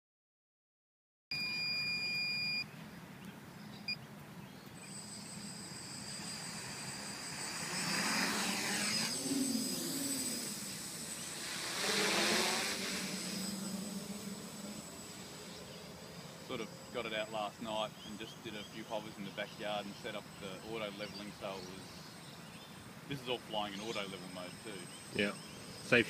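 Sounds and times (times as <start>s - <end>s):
long electronic beep: 1.3s - 2.7s, 4.8s - 9.7s
drone motors whining: 4.6s - 26.0s.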